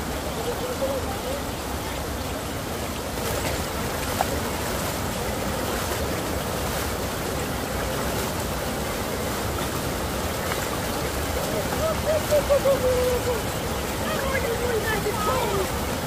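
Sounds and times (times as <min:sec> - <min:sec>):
running water: 0:00.0 - 0:16.0.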